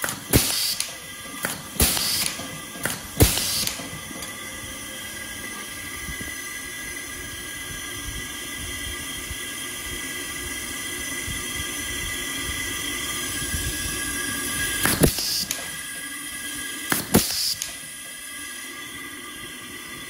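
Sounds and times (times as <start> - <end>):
high whining tones: 0.0 - 20.0
machine hum and hiss: 0.0 - 20.0.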